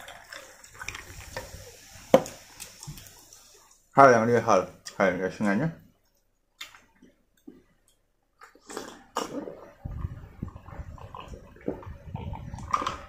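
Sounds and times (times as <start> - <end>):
person gulping and swallowing: 8.4 - 13.0
person sipping a drink: 8.4 - 13.0.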